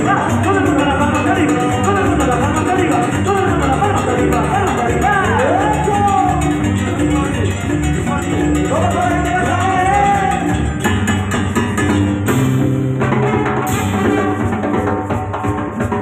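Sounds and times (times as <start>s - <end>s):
congas: 0.0s - 16.0s
drum kit: 0.0s - 16.0s
keyboard: 0.0s - 16.0s
horn section: 13.1s - 15.0s.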